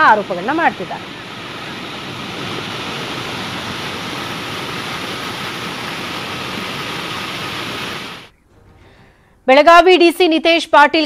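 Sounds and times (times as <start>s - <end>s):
water rushing over spillway: 0.0s - 8.3s.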